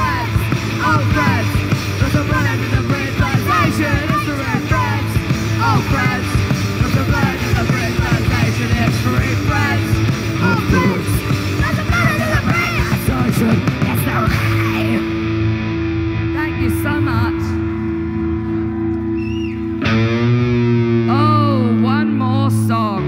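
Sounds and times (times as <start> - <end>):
rock band electric guitars: 0.0 - 23.0.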